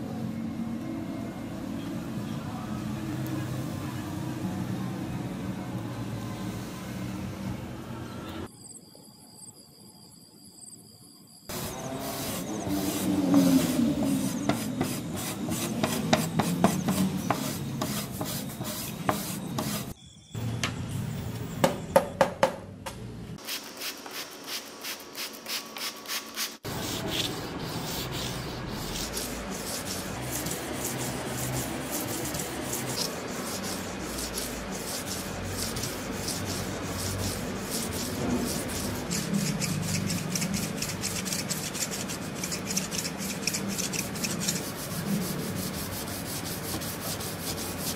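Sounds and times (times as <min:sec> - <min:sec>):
abrasive rubbing metal blade: 0:26.7 - 0:45.9.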